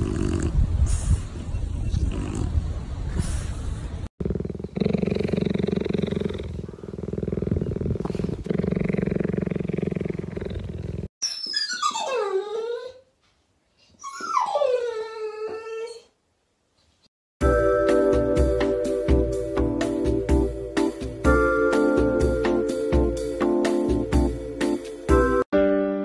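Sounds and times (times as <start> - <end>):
cheetah purring: 0.0 - 0.6, 4.2 - 11.1
dog whining: 11.2 - 13.2, 13.9 - 16.2.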